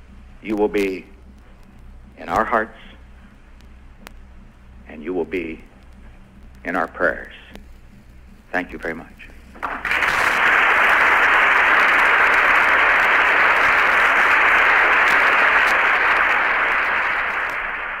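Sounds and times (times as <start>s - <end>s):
crowd applauding: 9.6s - 18.0s.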